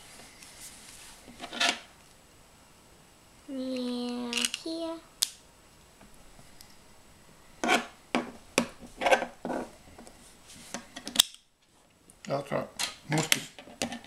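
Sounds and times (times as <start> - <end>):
person humming: 3.5 - 5.0.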